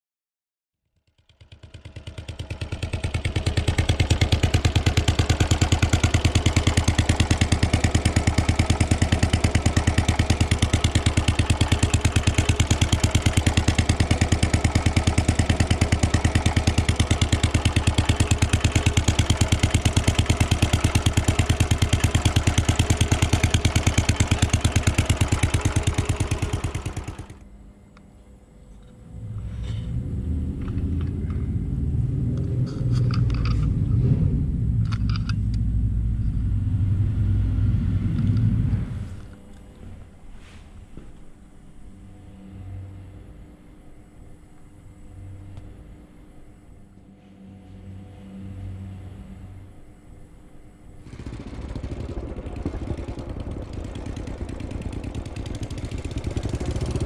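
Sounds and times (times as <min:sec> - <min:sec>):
motorcycle engine running: 0:00.8 - 0:27.5, 0:29.0 - 0:40.0, 0:51.0 - 0:57.0.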